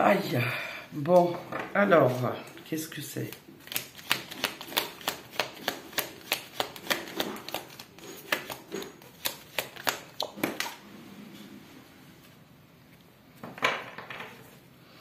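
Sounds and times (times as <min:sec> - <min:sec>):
cards being shuffled: 0:02.0 - 0:10.8.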